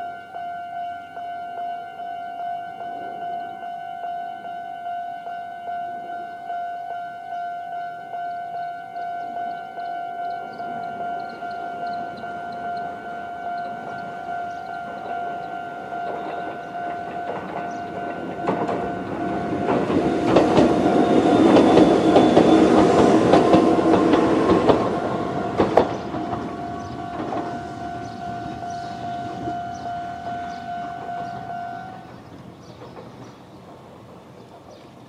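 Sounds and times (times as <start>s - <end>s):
level crossing bell ringing: 0.0s - 32.2s
train wheels clacking on rails: 9.4s - 35.0s.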